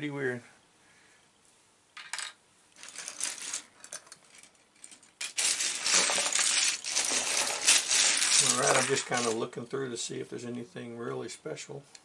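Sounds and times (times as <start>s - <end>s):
plastic bricks clattering: 2.0s - 9.4s.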